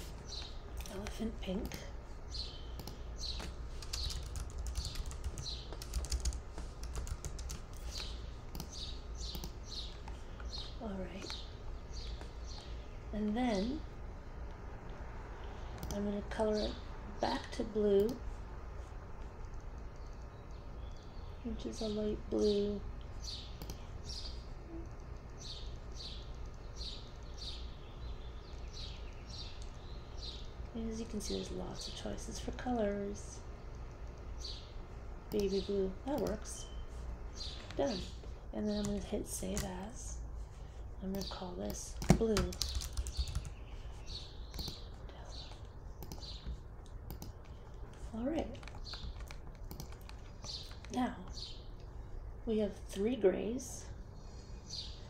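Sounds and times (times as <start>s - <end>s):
bird chirping: 0.0s - 6.0s
typing on computer keyboard: 2.8s - 9.6s, 42.0s - 43.6s, 45.6s - 50.9s.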